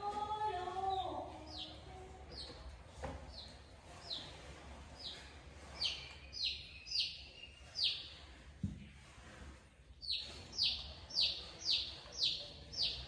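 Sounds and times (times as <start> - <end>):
small bird chirping: 5.0 - 8.2, 10.0 - 13.0.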